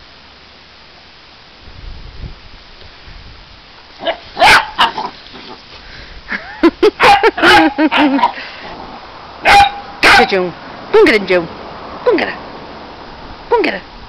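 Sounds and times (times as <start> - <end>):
dogs barking: 4.0 - 5.2, 7.0 - 8.4, 9.4 - 10.4.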